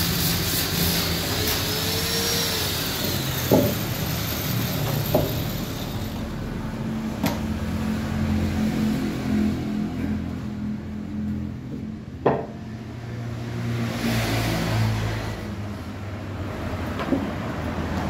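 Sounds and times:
wooden chair parts knocking: 3.5 - 3.8, 12.2 - 12.6.

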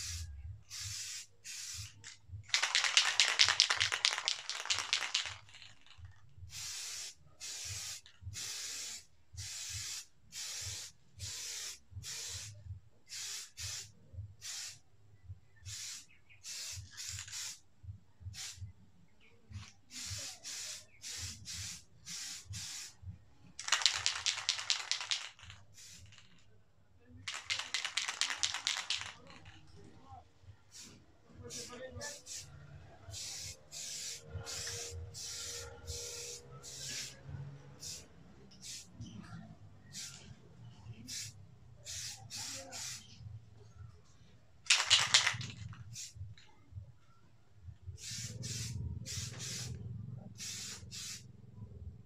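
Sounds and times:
aerosol spray bursts: 0.0 - 5.7, 6.5 - 14.8, 15.7 - 17.6, 19.9 - 23.0, 23.6 - 26.3, 27.3 - 29.6, 30.7 - 32.5, 33.1 - 39.1, 39.8 - 40.3, 41.0 - 43.2, 44.7 - 46.2, 48.0 - 49.8, 50.4 - 51.3
rapid clicking and hiss: 0.9 - 6.2, 23.6 - 26.4, 27.3 - 29.6, 44.7 - 46.5.

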